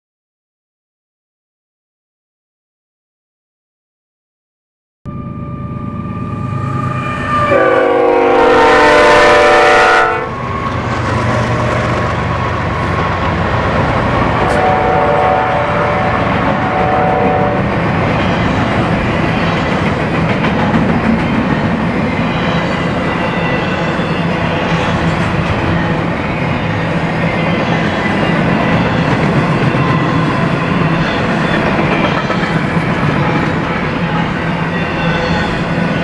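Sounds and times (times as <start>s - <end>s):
locomotive engines rumbling: 5.2s - 36.0s
locomotive air horn: 6.2s - 10.4s, 14.4s - 17.7s
train wheels on rail: 6.4s - 36.0s.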